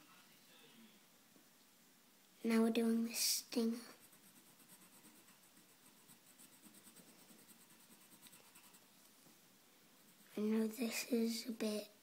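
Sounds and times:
pen scratching on paper: 3.9 - 8.9.

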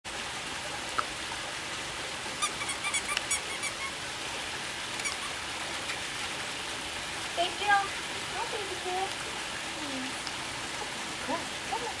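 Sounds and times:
waterfall running water: 0.1 - 12.0
short high squeaks: 2.4 - 4.0.

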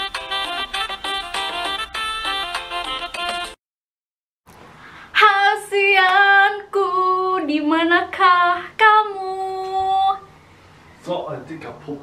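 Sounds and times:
woman singing unaccompanied: 5.2 - 10.3.

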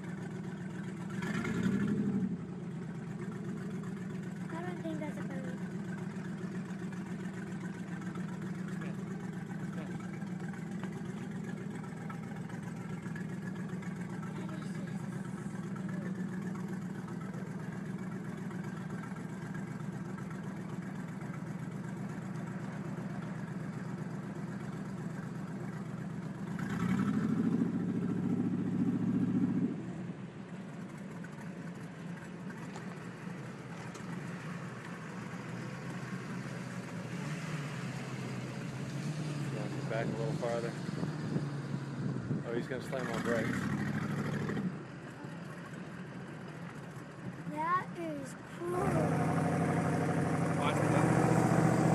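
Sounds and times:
vehicle engine running: 0.0 - 51.9
higher engine note: 47.5 - 51.9.

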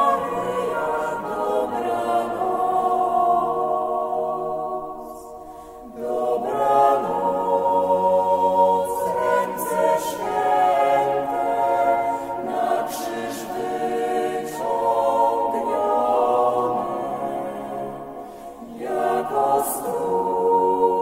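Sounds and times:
choir singing a slow hymn: 0.0 - 21.0.

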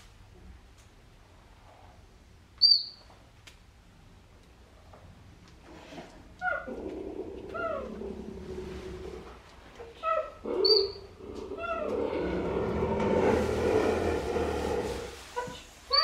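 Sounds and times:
cheetah chirping: 2.6 - 3.0, 10.0 - 11.8.

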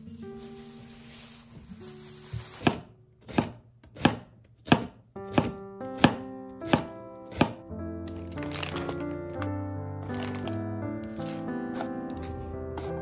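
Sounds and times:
knife chopping on wooden board: 2.5 - 7.6.

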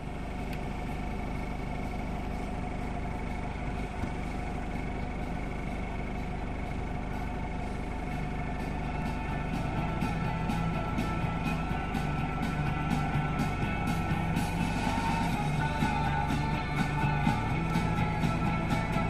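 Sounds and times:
engine-like hum with held tones: 0.0 - 19.0.

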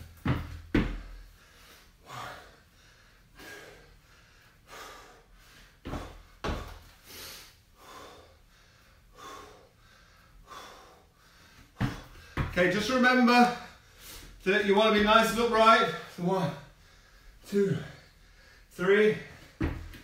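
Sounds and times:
dull thumps: 0.1 - 1.2, 5.9 - 6.9, 11.8 - 12.8, 19.5 - 20.0
man breathing hard: 0.8 - 12.5, 13.5 - 14.4, 15.9 - 20.0.

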